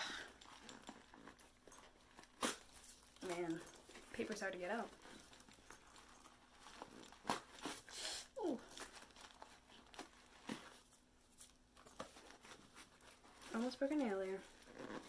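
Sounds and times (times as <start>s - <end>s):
paper crinkling: 8.5s - 13.8s.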